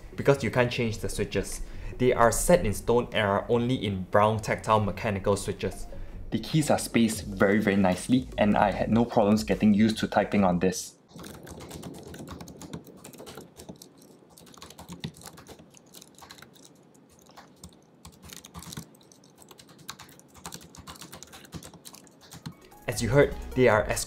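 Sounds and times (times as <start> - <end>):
rapid keyboard key clicks: 11.1 - 22.6.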